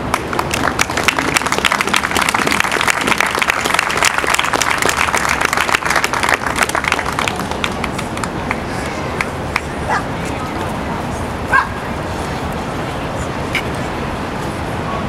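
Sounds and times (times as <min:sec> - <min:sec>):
crowd applauding: 0:00.0 - 0:09.8.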